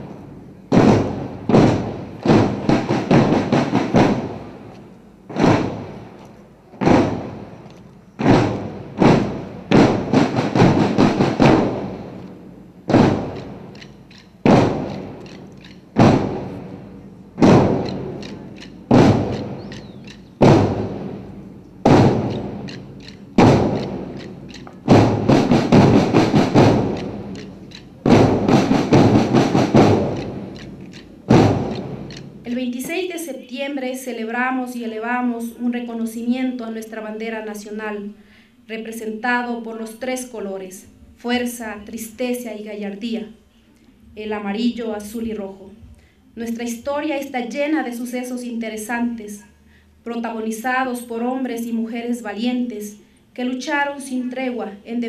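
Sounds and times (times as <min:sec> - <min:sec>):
marching drums beating: 0:00.0 - 0:32.9.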